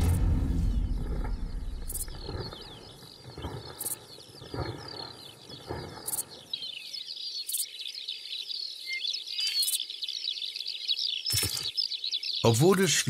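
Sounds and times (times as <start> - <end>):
soft low thumps: 0.0 - 2.9
small birds chirping: 0.8 - 13.0.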